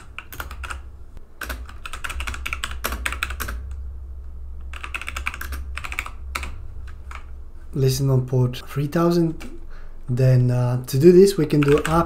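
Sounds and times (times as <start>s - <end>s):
typing on keyboard: 0.0s - 0.8s, 1.4s - 3.7s, 4.7s - 7.3s, 11.4s - 12.0s
low steady hum: 0.0s - 12.0s.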